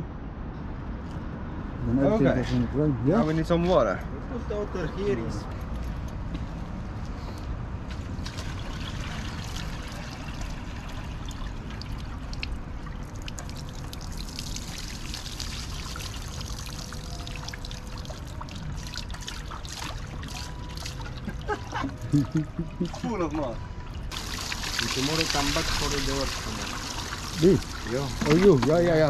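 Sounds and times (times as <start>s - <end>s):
water trickling onto pavement: 7.9s - 22.2s, 23.1s - 29.0s
water pouring and splashing: 7.9s - 29.0s.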